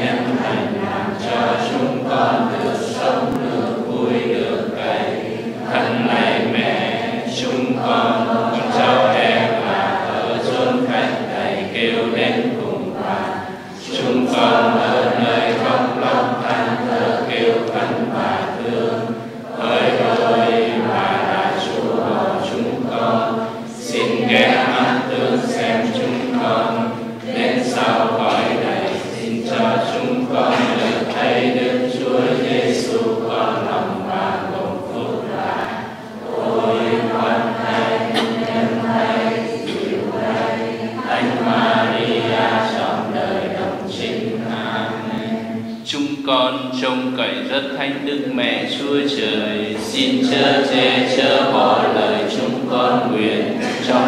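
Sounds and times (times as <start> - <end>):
congregation chanting a prayer: 0.0 - 54.0.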